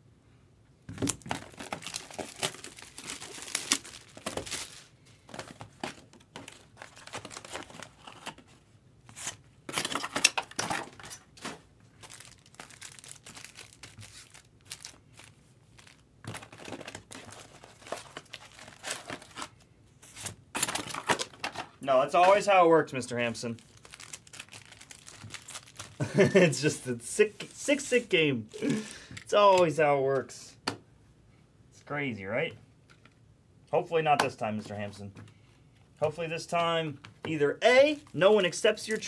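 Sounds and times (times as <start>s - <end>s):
foil packs crinkling and tearing: 1.0s - 8.4s, 9.1s - 26.8s, 37.8s - 39.0s.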